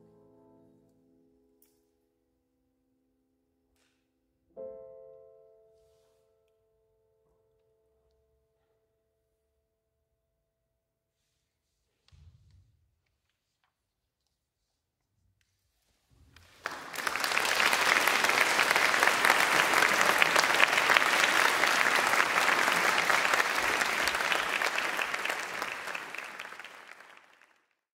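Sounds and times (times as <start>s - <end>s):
audience applauding: 16.4s - 27.8s.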